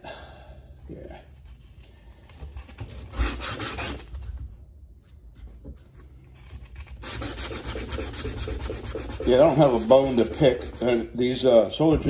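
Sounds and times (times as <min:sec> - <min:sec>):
sandpaper scraping a blade: 0:02.8 - 0:04.1, 0:06.6 - 0:11.4.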